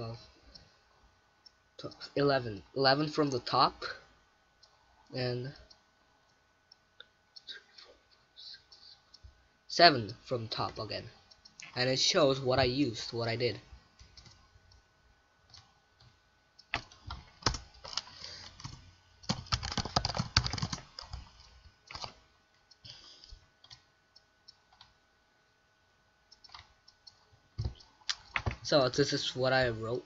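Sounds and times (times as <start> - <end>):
computer keyboard typing: 14.0 - 14.4, 15.5 - 22.2, 23.6 - 23.9, 24.5 - 25.0, 26.3 - 28.7.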